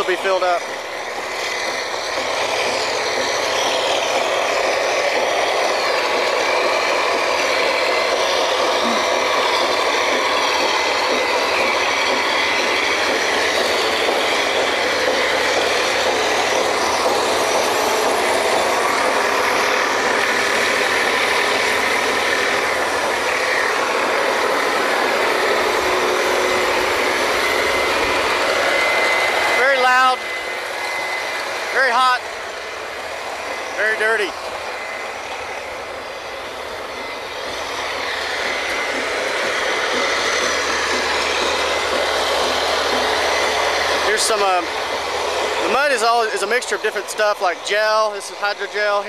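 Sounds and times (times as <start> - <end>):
drilling rig machinery drone: 0.0 - 49.0.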